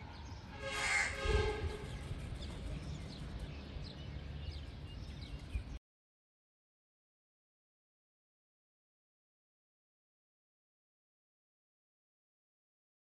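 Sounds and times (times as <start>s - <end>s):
low rumble: 0.2s - 5.8s
short loud horn tone: 0.6s - 2.0s.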